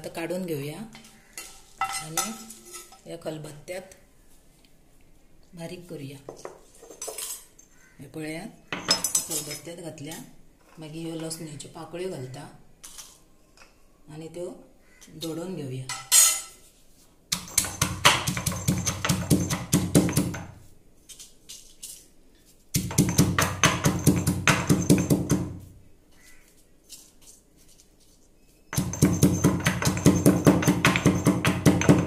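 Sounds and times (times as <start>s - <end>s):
stone pestle pounding in mortar: 17.3s - 20.6s, 22.7s - 25.6s, 28.8s - 32.0s.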